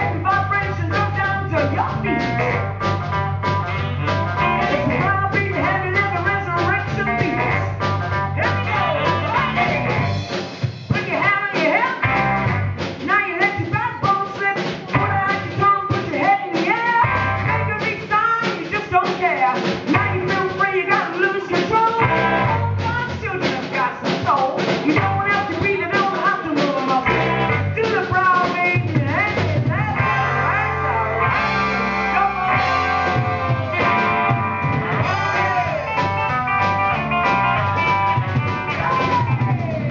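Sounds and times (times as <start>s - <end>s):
woman singing: 0.0s - 2.6s, 4.8s - 7.7s, 10.9s - 12.1s, 13.0s - 31.0s
live soul-funk band: 0.0s - 39.9s.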